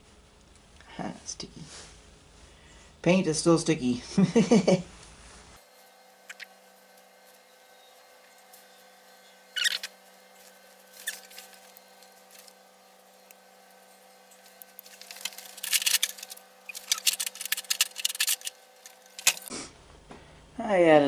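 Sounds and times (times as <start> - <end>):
metal engine parts clicking: 14.4 - 19.5
wrench clicking and rattling: 14.8 - 19.5.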